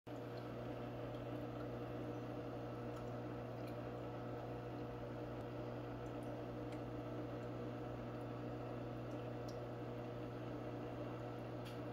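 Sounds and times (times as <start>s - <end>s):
aquarium pump humming: 0.1s - 11.9s.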